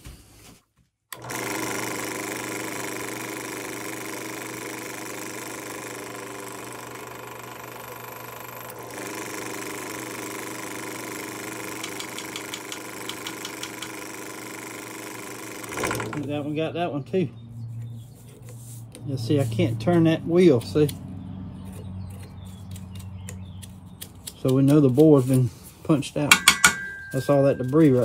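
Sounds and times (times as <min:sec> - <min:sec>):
drill press motor running: 0:01.1 - 0:16.6.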